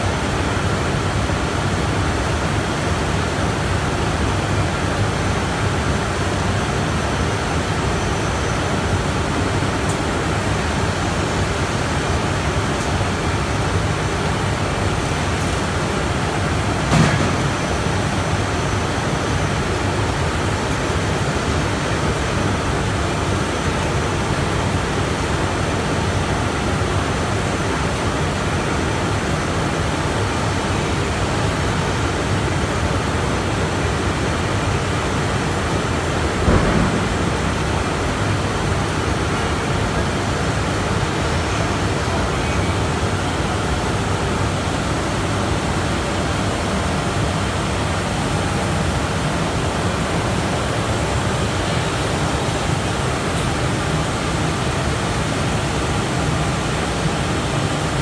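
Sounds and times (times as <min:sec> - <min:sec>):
dryer machine rushing noise: 0:00.0 - 0:58.0
loud bump: 0:36.4 - 0:37.8.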